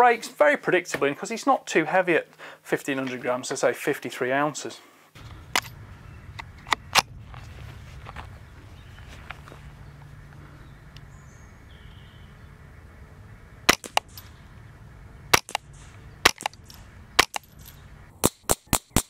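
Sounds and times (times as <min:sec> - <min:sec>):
rifle shots: 0:13.7 - 0:14.3, 0:15.3 - 0:19.0.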